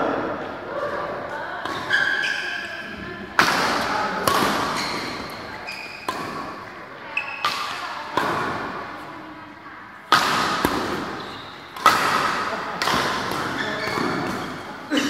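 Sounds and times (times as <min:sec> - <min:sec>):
rackets hitting shuttlecock: 0:00.4 - 0:02.7, 0:03.3 - 0:09.1, 0:10.1 - 0:14.8.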